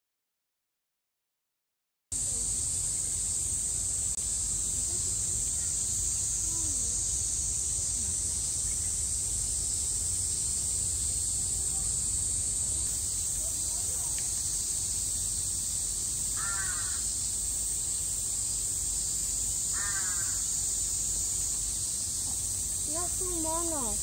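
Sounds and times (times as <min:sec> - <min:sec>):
cicadas shrilling: 0:02.2 - 0:24.0.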